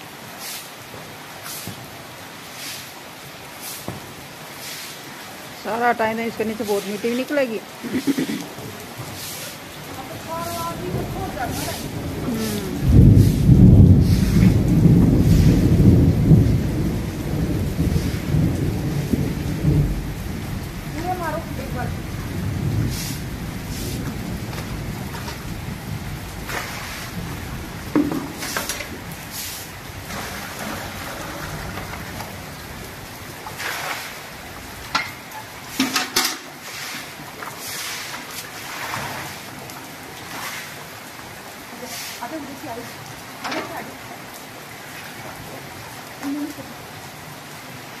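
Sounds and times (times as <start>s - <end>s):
broom swishing water: 0.0s - 16.0s, 17.8s - 18.5s, 22.8s - 25.4s, 26.4s - 32.3s, 33.1s - 42.6s
heavy rain on pavement: 0.0s - 48.0s
rolling thunder: 10.0s - 33.2s.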